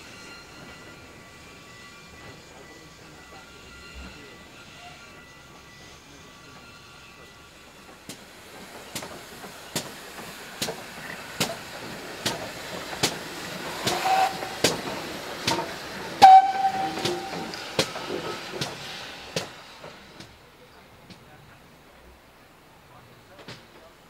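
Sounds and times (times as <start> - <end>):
steam locomotive exhaust chuffing: 0.0 - 21.3
steam hissing: 0.0 - 21.6
steam whistle: 13.8 - 14.7, 16.2 - 17.6.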